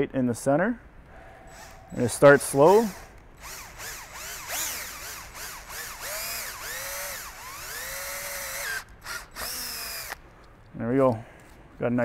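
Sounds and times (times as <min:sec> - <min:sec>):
cordless drill whining: 0:01.5 - 0:10.2.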